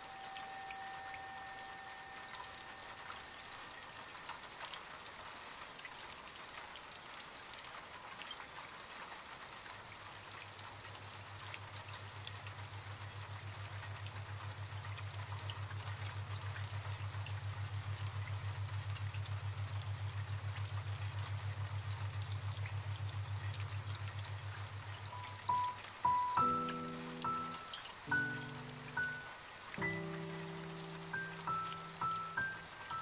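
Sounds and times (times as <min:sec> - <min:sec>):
rain-like hiss with crackles: 0:00.0 - 0:33.0
low pulsing hum: 0:13.0 - 0:25.2.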